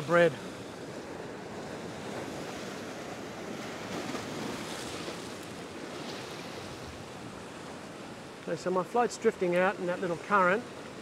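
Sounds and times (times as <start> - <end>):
surf washing over rocks: 0.0 - 11.0.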